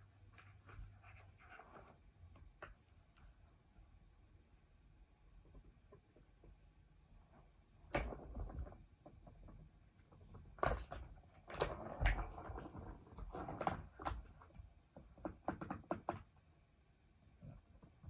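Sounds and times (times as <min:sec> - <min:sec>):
paws knocking plastic track: 0:08.0 - 0:16.4.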